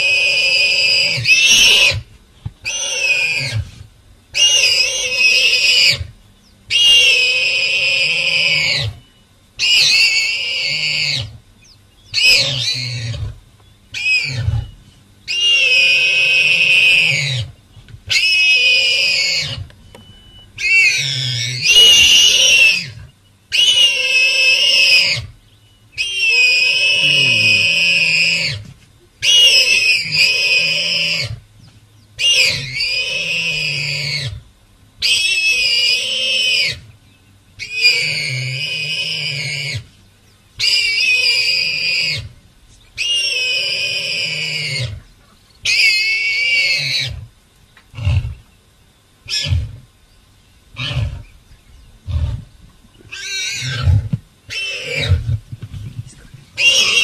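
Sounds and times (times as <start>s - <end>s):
warthog squealing: 2.7s - 3.6s, 12.2s - 13.4s, 14.0s - 17.5s, 20.6s - 25.3s, 26.0s - 28.6s, 29.2s - 31.3s, 32.2s - 34.4s, 50.8s - 51.3s, 53.1s - 55.3s, 56.6s - 57.0s
warthog short calls: 26.1s - 28.6s.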